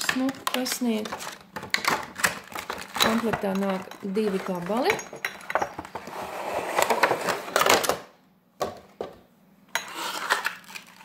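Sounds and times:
plastic packaging rustling: 0.0s - 5.0s, 10.0s - 11.0s.

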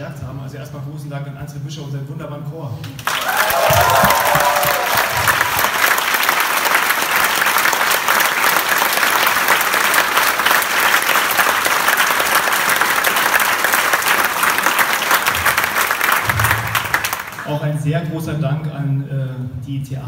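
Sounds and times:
crowd applause: 3.0s - 17.6s.

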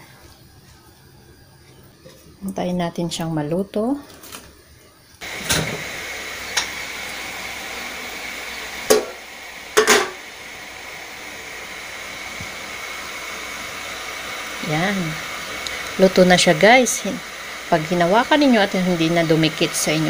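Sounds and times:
steamer hissing: 5.2s - 20.0s.

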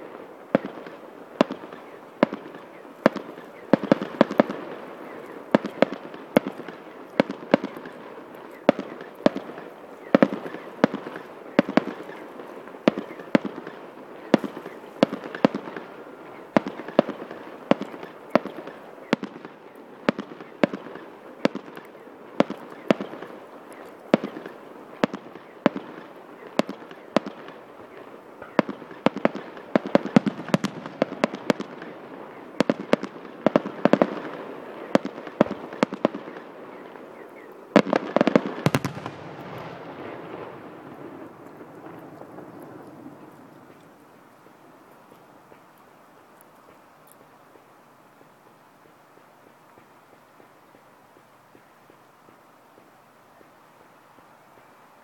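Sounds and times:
fireworks shells bursting: 37.8s - 43.9s.

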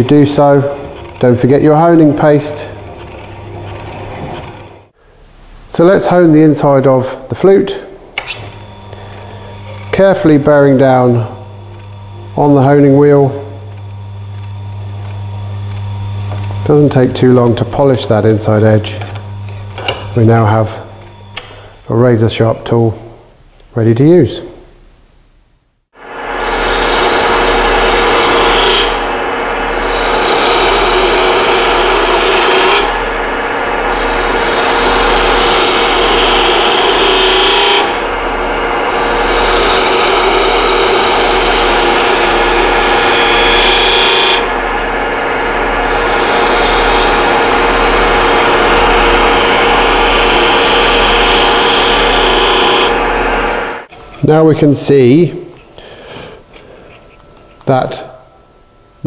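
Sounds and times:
lathe humming: 0.0s - 5.0s, 7.7s - 21.9s, 26.0s - 54.2s
gouge shearing wood: 26.5s - 32.9s, 33.8s - 44.6s, 45.7s - 53.0s.

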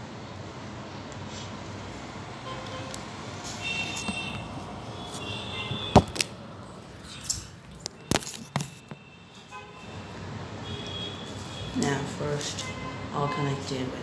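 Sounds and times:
low room noise: 0.0s - 14.0s
phone being handled: 3.8s - 6.4s, 7.8s - 9.0s.

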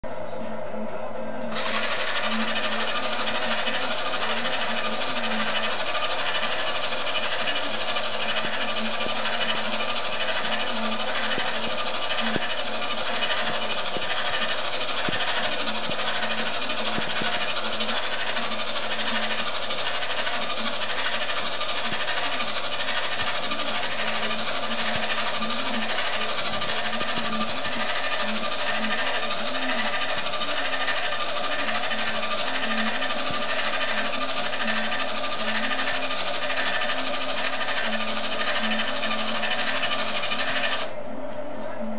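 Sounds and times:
small electric motors running: 1.5s - 41.0s.

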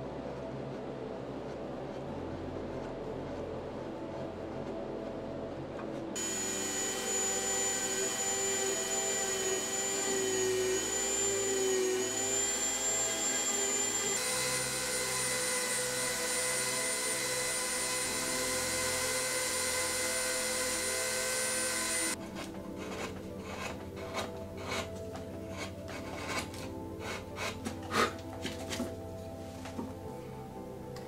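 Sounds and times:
rotary tool grinding wood: 6.2s - 28.9s.

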